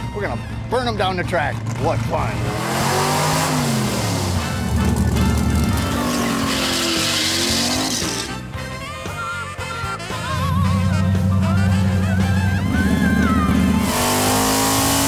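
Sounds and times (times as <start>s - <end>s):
background music: 0.0s - 15.0s
car engines revving: 1.0s - 8.5s, 10.4s - 15.0s
tyre squeal: 5.7s - 8.4s.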